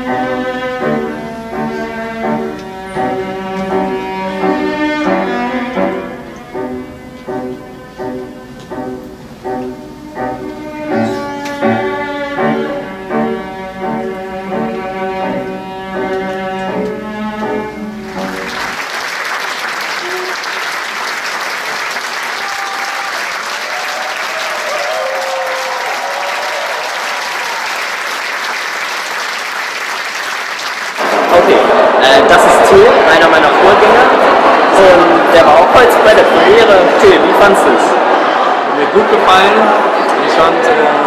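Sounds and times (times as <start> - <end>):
orchestral string music: 0.0 - 18.8
audience applause: 18.1 - 41.0
audience cheering: 18.2 - 41.0.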